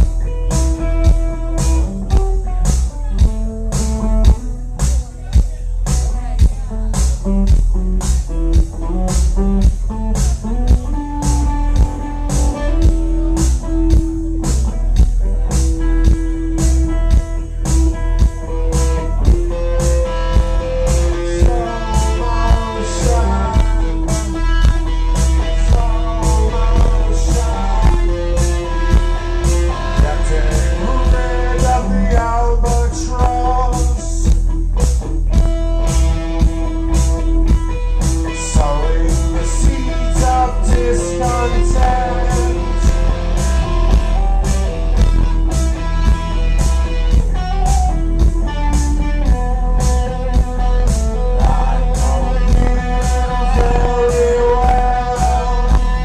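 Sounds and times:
electric guitar: 0:00.0 - 0:56.0
man singing: 0:18.2 - 0:34.4, 0:38.2 - 0:44.8, 0:50.6 - 0:56.0.

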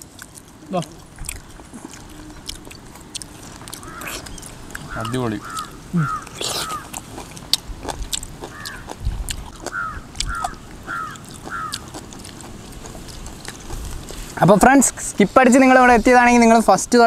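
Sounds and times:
person chewing: 0:00.0 - 0:14.4
crow cawing: 0:03.5 - 0:07.0, 0:08.4 - 0:12.1.

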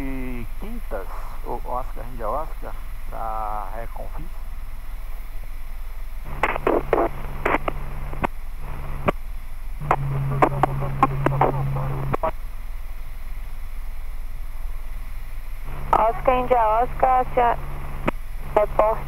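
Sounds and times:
muffled radio voice transmissions: 0:00.0 - 0:04.3, 0:06.3 - 0:07.8, 0:09.8 - 0:12.3, 0:15.8 - 0:17.6, 0:18.5 - 0:19.0
helicopter intercom drone: 0:09.8 - 0:12.4, 0:15.7 - 0:19.0.

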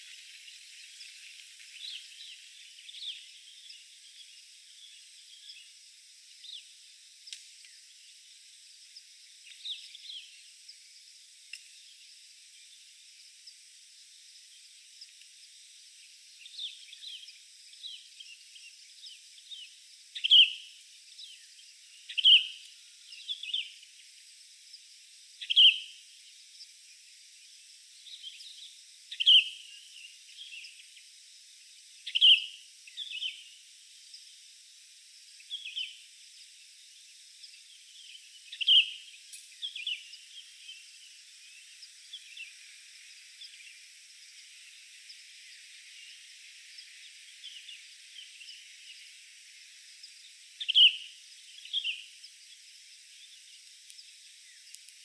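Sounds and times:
faint outdoor hiss: 0:00.0 - 0:55.0
bird calling: 0:50.6 - 0:52.1.

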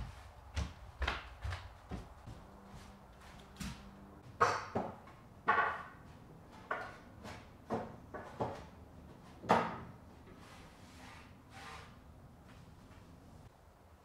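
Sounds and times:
wooden board knocking on metal brackets: 0:04.2 - 0:08.7.

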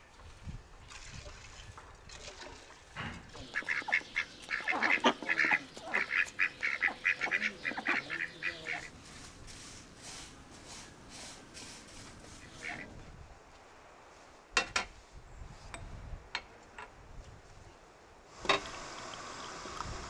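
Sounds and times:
duck quacking: 0:03.4 - 0:08.9, 0:12.5 - 0:12.9.

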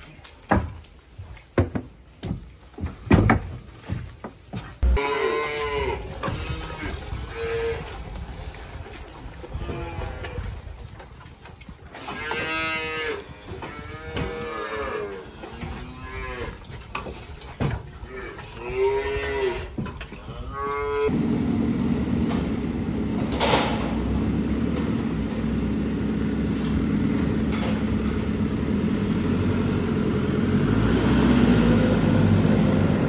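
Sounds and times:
cattle mooing: 0:04.8 - 0:07.9, 0:09.5 - 0:10.5, 0:12.0 - 0:16.7, 0:18.1 - 0:21.1.

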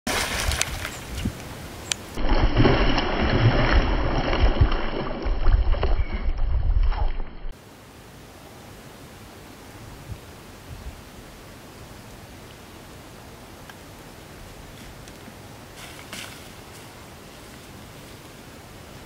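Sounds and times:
fish thrashing and splashing water: 0:00.1 - 0:01.0, 0:02.2 - 0:07.2
wind rumbling on microphone: 0:00.1 - 0:07.5, 0:09.8 - 0:11.0
steady hiss: 0:07.6 - 0:19.0.

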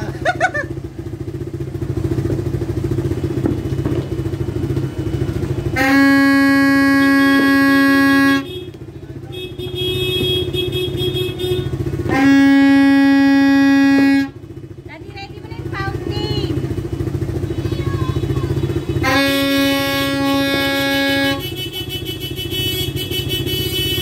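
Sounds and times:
motorcycle engine idling: 0:00.0 - 0:24.0
loud steady horn blast: 0:05.0 - 0:14.8, 0:17.0 - 0:24.0
higher-pitched horn tone: 0:05.1 - 0:14.6, 0:17.2 - 0:24.0.

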